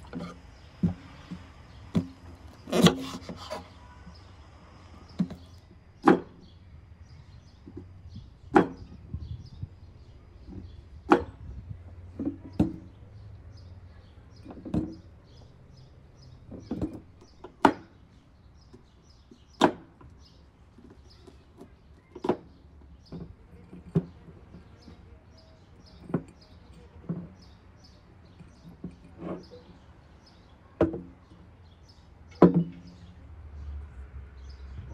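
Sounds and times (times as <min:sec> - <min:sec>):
small birds chirping: 0:00.0 - 0:34.9.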